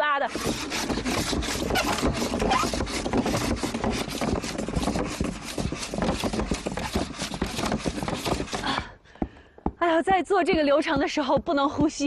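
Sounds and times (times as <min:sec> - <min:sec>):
sieve rasping on frame: 0:00.0 - 0:08.9.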